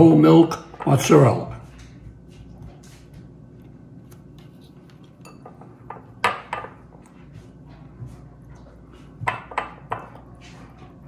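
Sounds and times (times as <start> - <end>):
kitchenware clinking: 5.1 - 6.9, 9.2 - 10.8.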